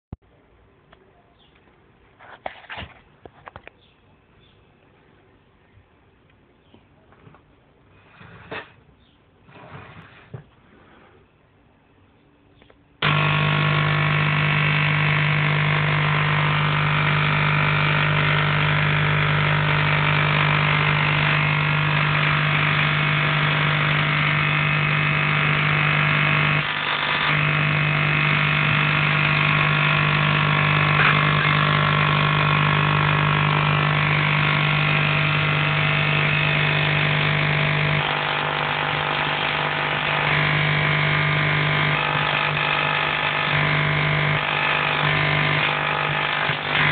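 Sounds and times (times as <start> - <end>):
tesla coil buzzing: 13.0 - 46.9.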